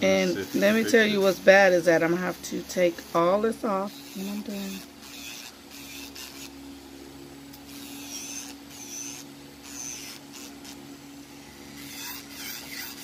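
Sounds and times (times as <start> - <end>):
steady low hum: 0.0 - 13.0
nail file rasping: 3.1 - 6.5, 7.6 - 10.8, 11.8 - 13.0.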